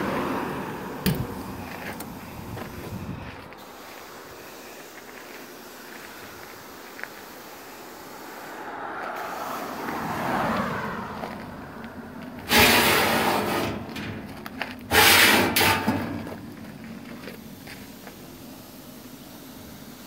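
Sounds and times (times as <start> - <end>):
metal pan scraping on runners: 14.9 - 16.1.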